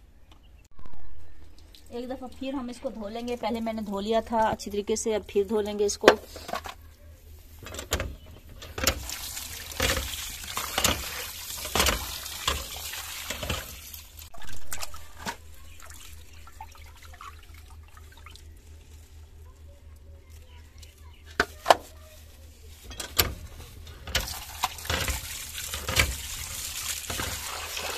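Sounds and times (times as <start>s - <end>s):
water sloshing in a bowl: 1.5s - 27.9s
water pouring into a steel bowl: 8.6s - 18.9s, 24.0s - 27.9s.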